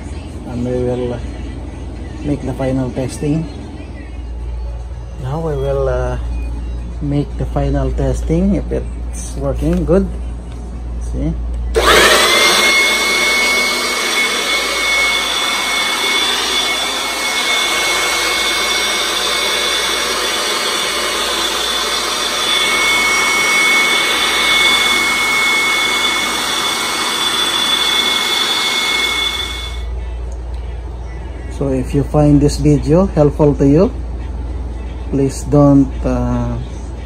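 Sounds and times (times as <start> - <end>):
electric air blower whining: 11.7 - 30.0.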